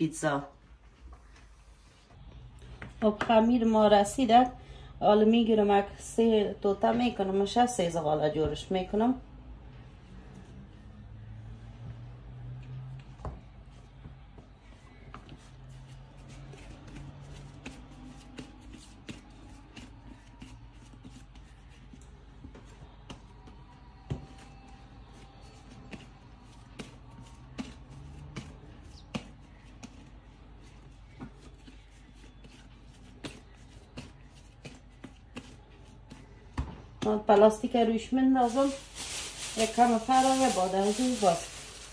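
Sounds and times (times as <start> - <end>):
dough patting on a mat: 13.1 - 37.6.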